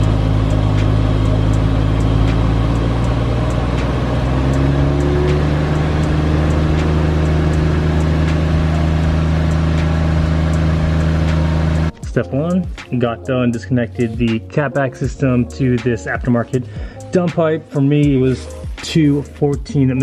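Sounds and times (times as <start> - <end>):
car engine idling: 0.0 - 14.4.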